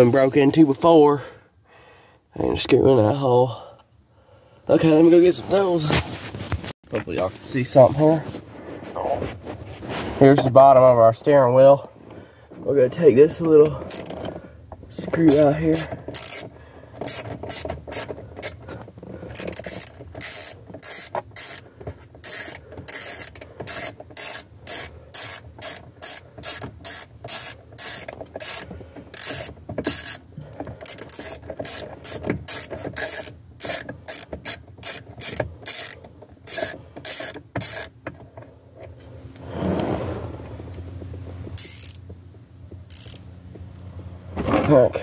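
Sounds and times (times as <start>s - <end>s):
hand ratchet clicking: 13.5s - 14.3s, 15.0s - 38.1s, 41.6s - 42.1s, 42.8s - 43.3s.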